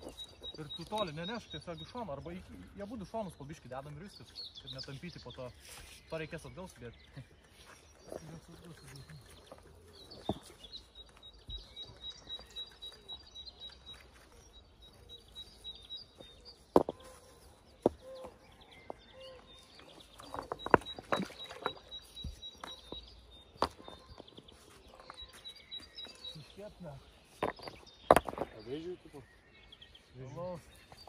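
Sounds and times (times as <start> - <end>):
stones knocking and scraping: 0.0 - 1.4, 6.0 - 14.4, 16.1 - 26.4, 27.2 - 29.0
faint high chirp: 0.0 - 3.5, 4.2 - 31.0.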